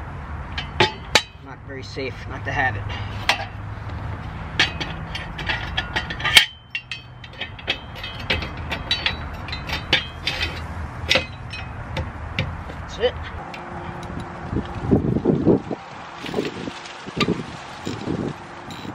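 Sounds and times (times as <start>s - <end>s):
wrench clicking on metal bolts: 4.6s - 12.8s.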